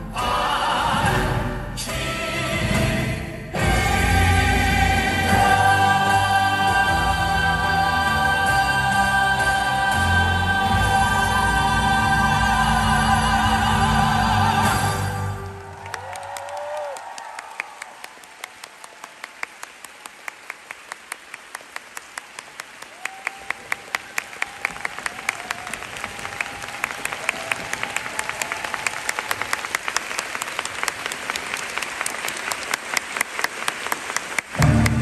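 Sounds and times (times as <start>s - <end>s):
audience applauding: 15.2s - 35.0s.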